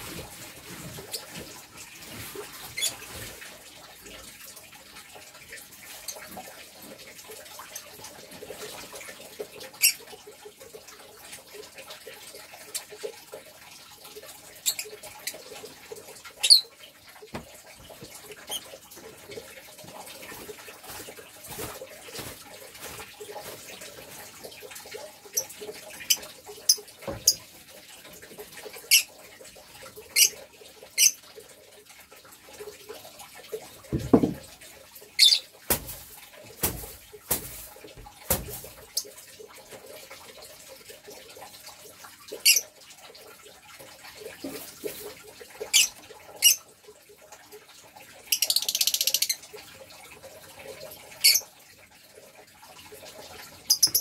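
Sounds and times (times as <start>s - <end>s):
dull knocks: 33.9s - 34.5s.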